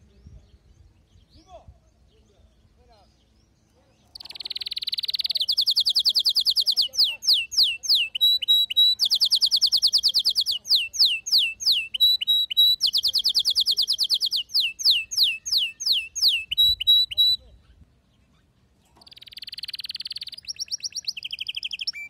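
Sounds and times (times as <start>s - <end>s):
canary singing: 1.0s - 22.0s.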